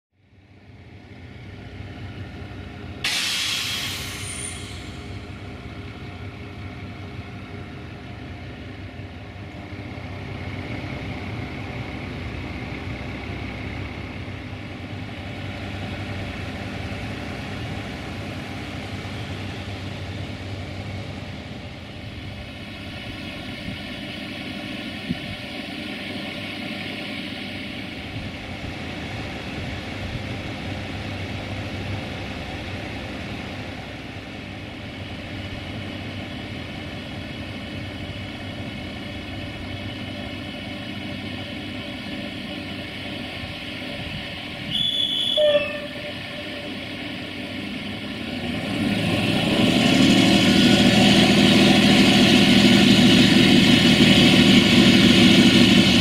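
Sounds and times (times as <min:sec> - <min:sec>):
diesel engine hum: 0:00.2 - 0:56.0
rail and wheel noise: 0:00.2 - 0:56.0
compressed air hiss: 0:03.1 - 0:05.0.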